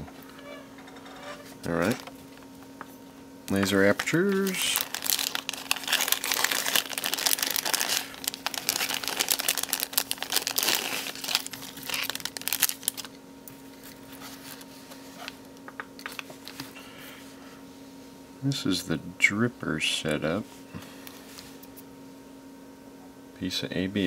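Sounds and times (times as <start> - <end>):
plastic bag crinkling: 3.5 - 13.2.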